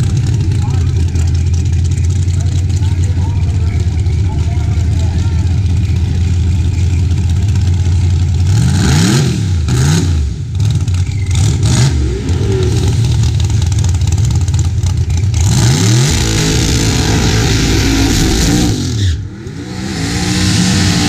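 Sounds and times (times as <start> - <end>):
race car engines idling: 0.0 - 8.8, 9.4 - 21.0
engine revving: 7.5 - 21.0.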